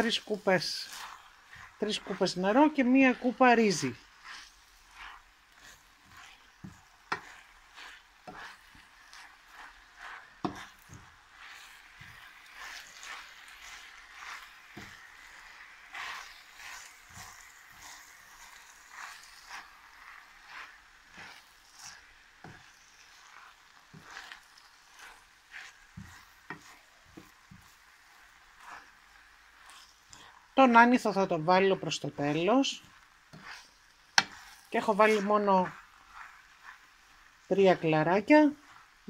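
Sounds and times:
faint sizzle: 0:00.0 - 0:39.0
wooden spoon scraping pan: 0:00.0 - 0:39.0.

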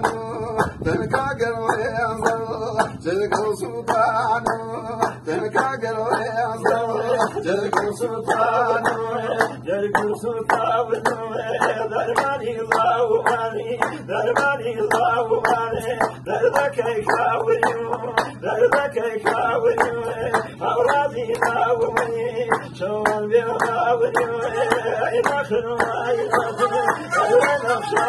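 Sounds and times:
man singing folk song: 0:00.0 - 0:28.0
men clapping on a beat: 0:00.0 - 0:28.0.

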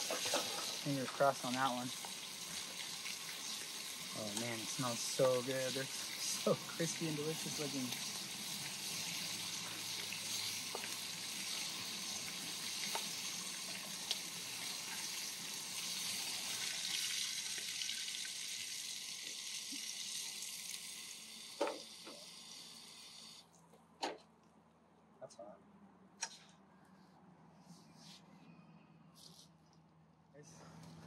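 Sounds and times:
clams sizzling in hot oil: 0:00.0 - 0:23.4.

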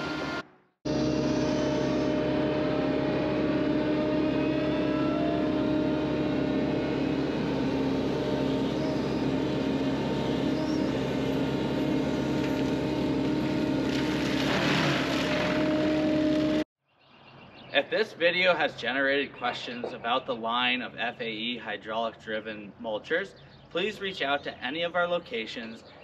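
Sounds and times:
burst of harsh rough noise: 0:00.0 - 0:16.7
two-tone mechanical hum: 0:00.0 - 0:16.7.

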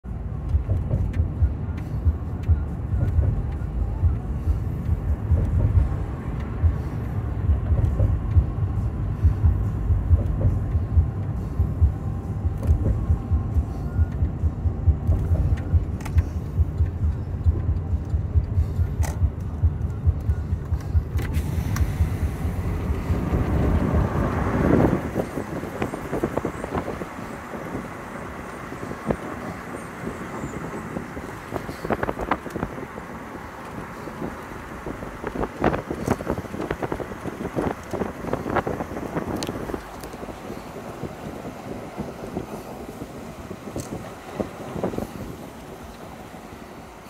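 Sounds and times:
car interior road rumble: 0:00.0 - 0:47.0
rushing swell: 0:21.3 - 0:32.4.

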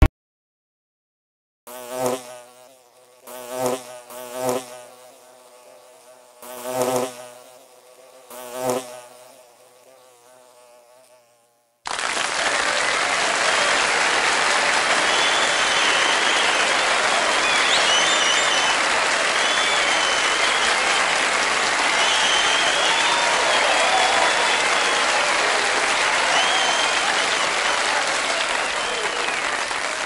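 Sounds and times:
insect buzzing: 0:01.7 - 0:11.8, 0:14.5 - 0:27.7
applause: 0:11.9 - 0:30.0.

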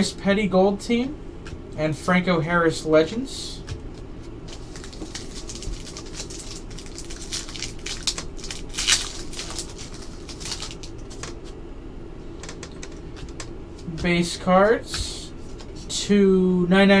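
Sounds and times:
crisp card rustle: 0:03.9 - 0:11.6.

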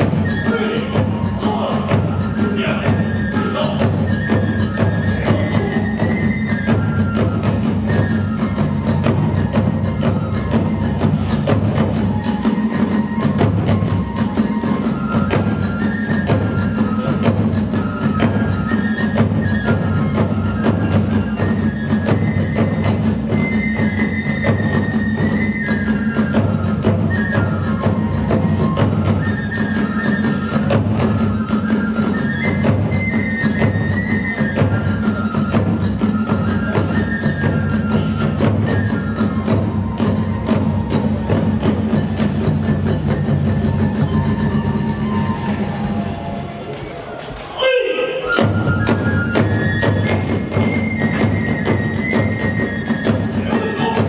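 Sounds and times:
bamboo flute melody: 0:00.0 - 0:54.0.

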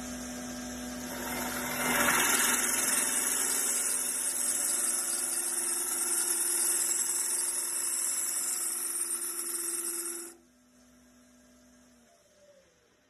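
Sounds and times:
wood lathe humming: 0:01.0 - 0:10.4.

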